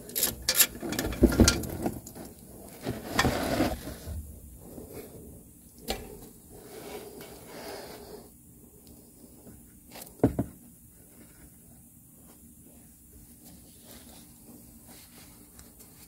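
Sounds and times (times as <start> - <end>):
rubbing and scraping: 0.5 - 4.2.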